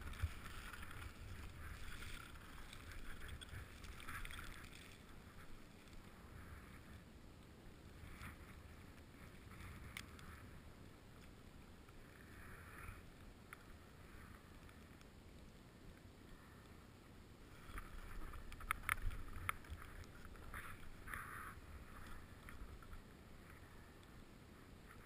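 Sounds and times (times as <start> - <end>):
skis scraping over snow: 0.0 - 7.0.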